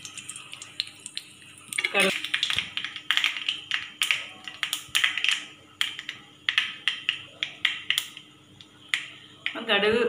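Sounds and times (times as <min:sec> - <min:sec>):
oil sizzling: 0:00.0 - 0:06.1
seeds popping in hot oil: 0:00.0 - 0:09.6.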